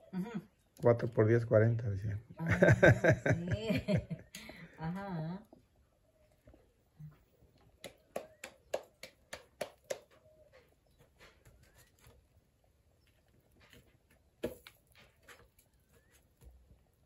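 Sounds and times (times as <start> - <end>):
hands slapping dough: 7.8 - 10.2.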